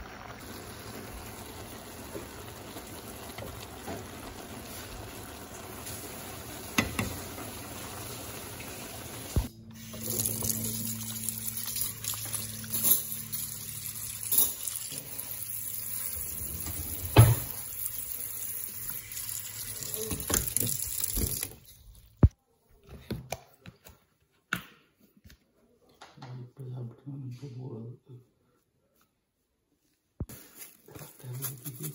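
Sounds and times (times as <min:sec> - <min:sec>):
tap water running into colander: 0:00.0 - 0:21.7.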